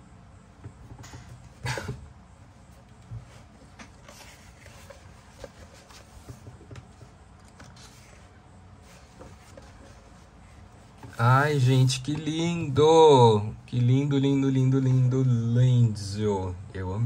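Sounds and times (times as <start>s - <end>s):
paper pages rustling: 3.1s - 11.4s.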